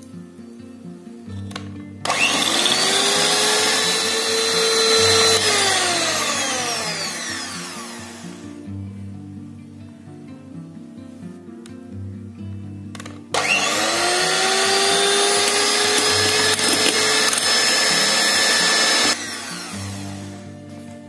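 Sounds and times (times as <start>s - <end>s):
soft background music: 0.0s - 21.0s
electric hand mixer whirring: 2.1s - 8.4s, 13.4s - 20.6s.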